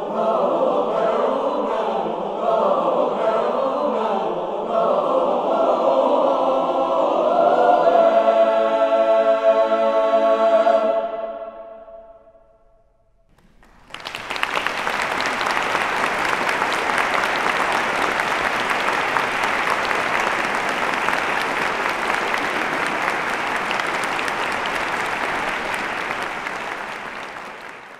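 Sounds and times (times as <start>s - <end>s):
choir final chord: 0.0s - 12.8s
audience applause: 13.3s - 27.9s.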